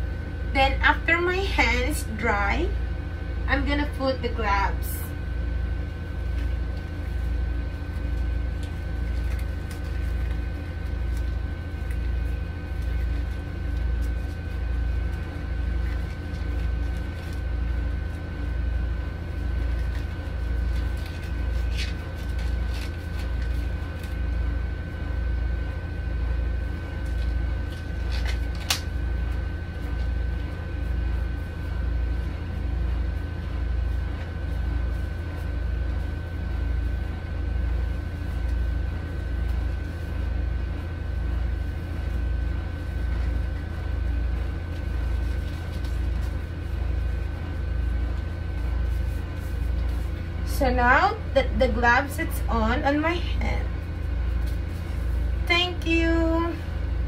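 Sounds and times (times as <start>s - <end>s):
deep pulsing machine hum: 0.0s - 57.0s
faint high whine: 39.6s - 57.0s.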